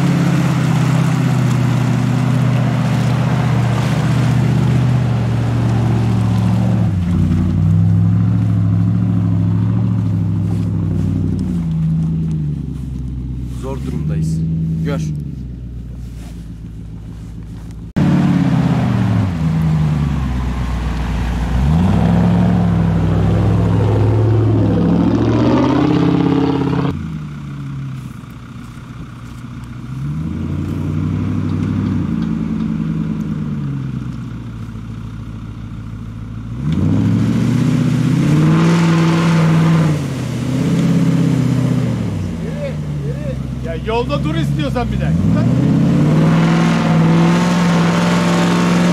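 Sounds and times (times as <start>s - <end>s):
tyres churning mud: 0.0s - 15.2s, 18.0s - 26.9s, 36.5s - 48.9s
engine revving hard: 21.4s - 27.0s, 36.6s - 48.9s.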